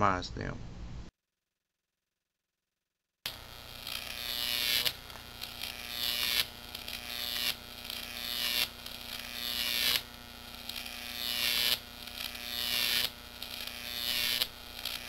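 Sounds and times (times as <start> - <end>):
electric arc buzzing and crackling: 3.3 - 15.0
steady low hum: 3.3 - 15.0.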